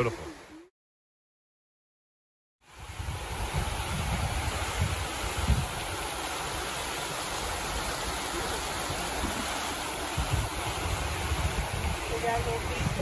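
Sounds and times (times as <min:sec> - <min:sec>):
creek rushing over rock: 0:02.6 - 0:13.0.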